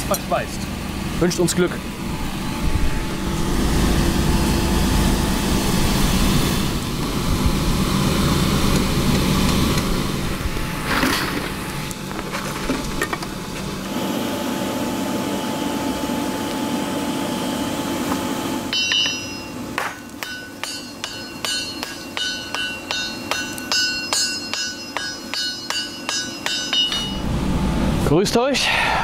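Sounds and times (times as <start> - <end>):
steady motor hum: 0.0 - 29.0
hammer striking steel on anvil: 18.7 - 27.3.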